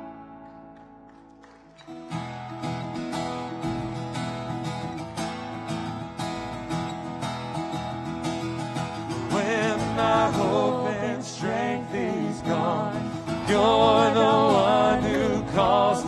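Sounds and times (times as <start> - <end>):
acoustic bass guitar: 0.0 - 1.2, 1.9 - 16.0
acoustic guitar strumming: 0.0 - 16.0
man singing: 9.2 - 16.0.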